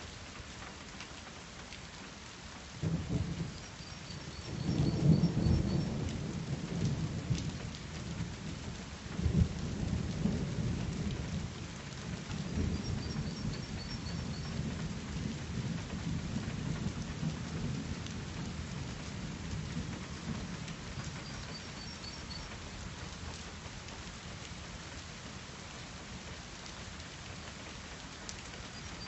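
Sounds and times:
rain hiss: 0:00.0 - 0:29.0
thunder rumbling: 0:02.8 - 0:08.4, 0:12.3 - 0:18.5, 0:19.2 - 0:22.5.

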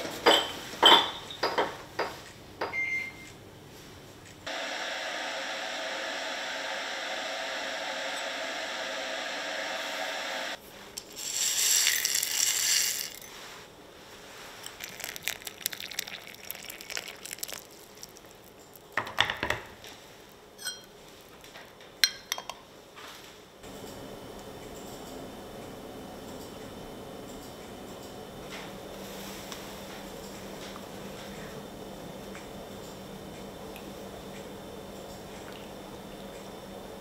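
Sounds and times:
porcelain cups clinking: 0:00.2 - 0:01.8, 0:11.2 - 0:13.3, 0:14.8 - 0:18.1, 0:20.6 - 0:21.0, 0:22.0 - 0:22.6.

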